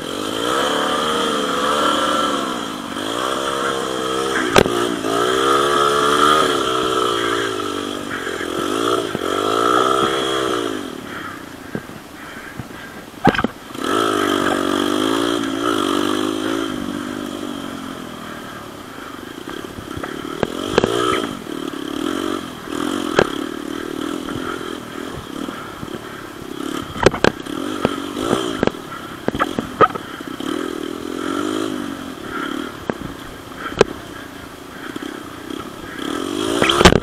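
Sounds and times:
dirt bike engine revving: 0.0 - 37.0
sharp knocks and clatter: 27.0 - 30.0.

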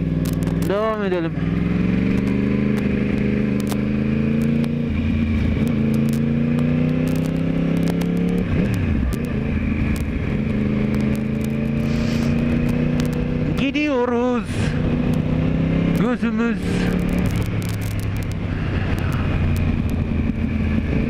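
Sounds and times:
motorcycle engine revving: 0.0 - 21.0
wind rushing over microphone: 16.6 - 21.0.

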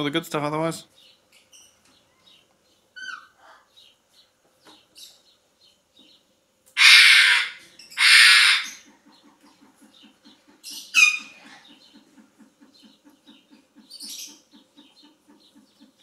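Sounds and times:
parrots squawking: 3.0 - 3.9, 6.8 - 9.5, 10.6 - 12.2.

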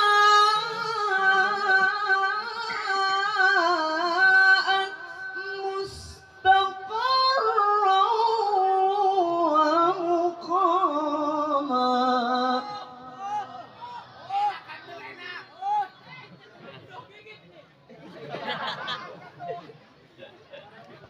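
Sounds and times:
man reciting melodically through loudspeakers: 0.0 - 14.9.

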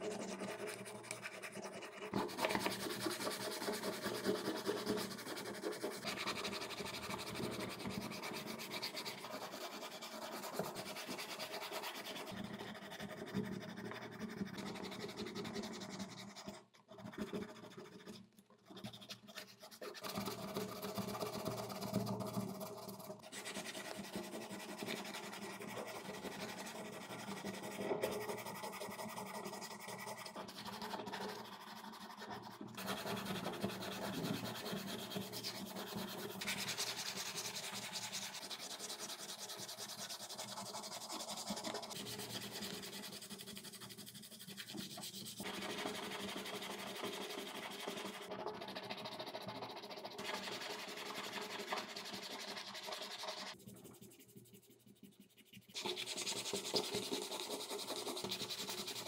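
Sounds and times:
sandpaper scraping plastic: 0.1 - 12.6, 18.7 - 48.8, 55.6 - 59.0.

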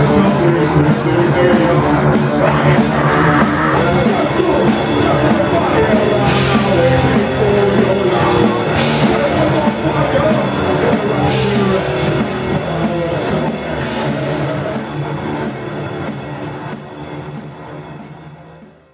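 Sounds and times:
person singing into microphone: 0.0 - 15.0
drum kit: 0.0 - 18.9
electric guitar: 0.0 - 18.9.

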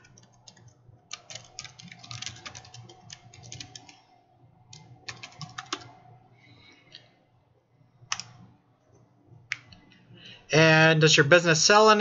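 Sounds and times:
computer keyboard typing: 0.0 - 4.0, 4.7 - 6.0, 8.1 - 8.4.

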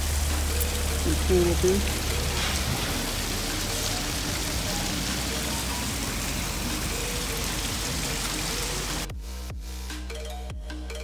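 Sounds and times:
waterfall splashing over rocks: 0.0 - 9.1.

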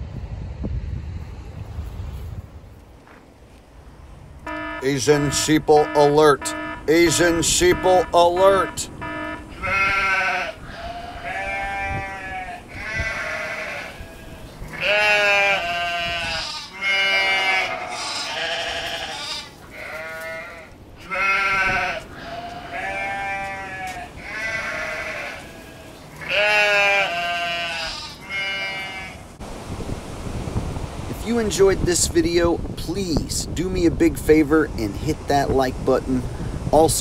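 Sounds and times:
sheep bleating: 4.5 - 29.2.

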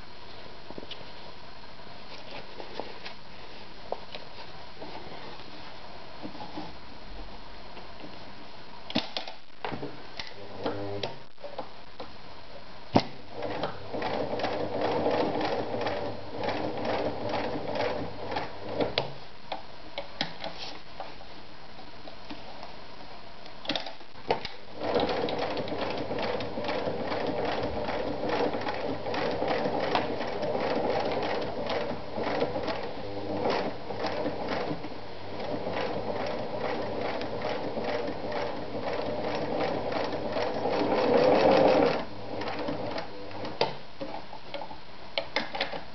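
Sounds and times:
sewing machine stitching leather: 13.4 - 19.2, 23.7 - 44.2.

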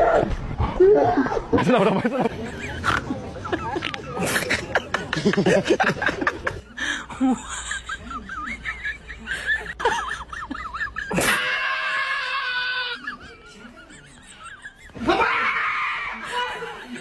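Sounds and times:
high-pitched laughing and squealing: 7.4 - 17.0.

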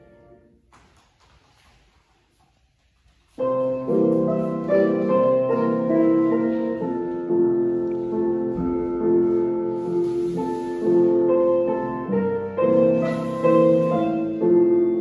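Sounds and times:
solo piano music: 3.4 - 15.0.

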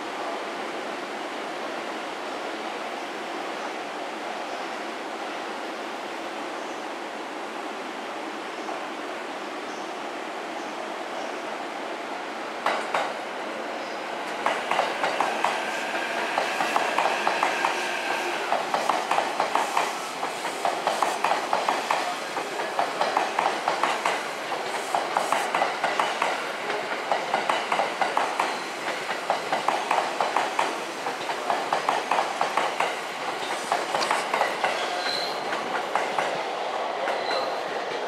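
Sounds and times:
train running noise: 10.0 - 38.0
train wheels clacking over rail joints: 12.6 - 13.2, 14.3 - 36.4
short high wheel squeals: 34.8 - 35.4.

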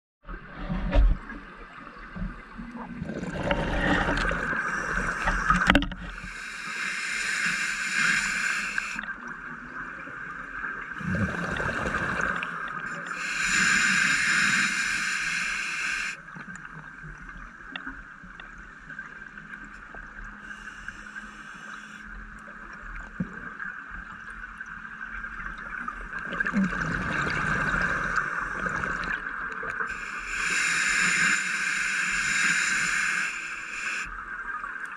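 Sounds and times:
exhaled bubbles rushing underwater: 1.2 - 6.3, 8.7 - 13.5, 25.0 - 30.1
regulator hiss: 4.6 - 9.1, 12.8 - 16.2, 20.4 - 22.1, 29.9 - 34.2.

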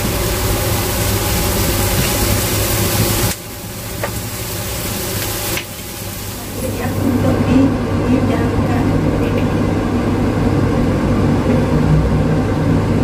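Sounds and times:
low mechanical hum: 0.0 - 13.0.

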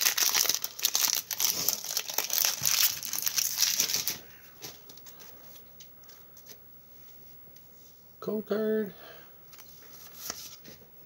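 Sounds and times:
foil wrapper crinkling: 0.0 - 4.2.

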